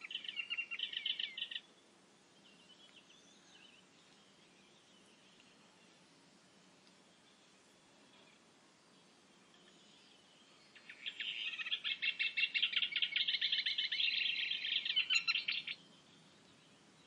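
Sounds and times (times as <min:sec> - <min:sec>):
bird song chattering: 0:00.0 - 0:01.8, 0:09.0 - 0:17.0.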